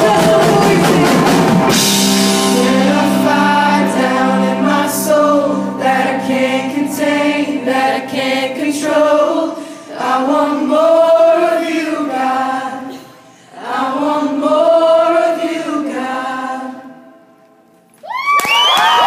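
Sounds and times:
group singing in harmony: 0.0s - 17.4s
crowd screaming and cheering: 18.0s - 19.0s.

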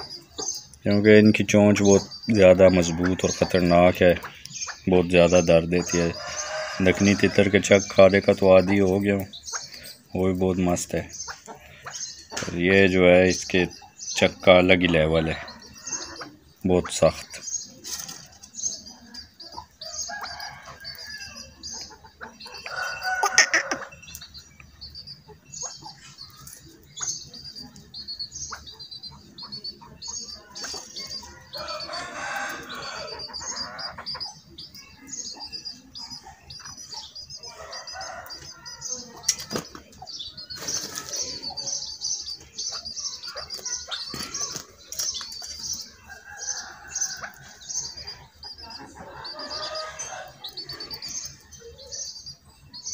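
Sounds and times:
high rapid bird chirps: 0.0s - 52.9s.

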